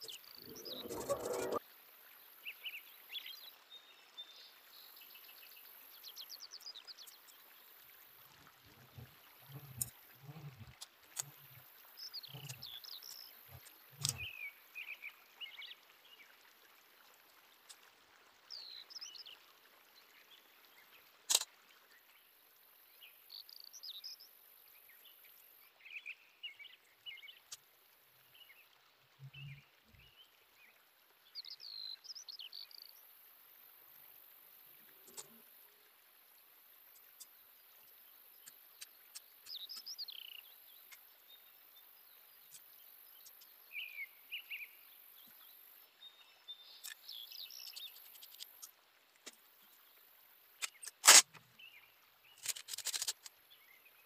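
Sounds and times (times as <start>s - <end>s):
descending bird chirps: 0.0s - 1.6s.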